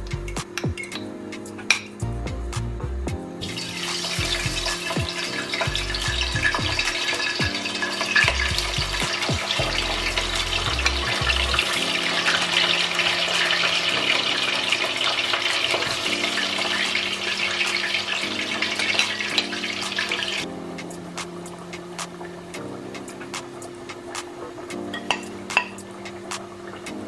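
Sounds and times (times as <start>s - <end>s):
food sizzling in hot oil: 3.4s - 20.4s.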